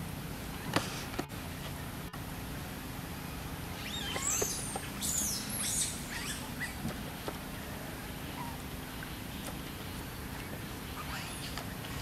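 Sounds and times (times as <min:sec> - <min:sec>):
animal squeaks and chirps: 0:03.8 - 0:06.8.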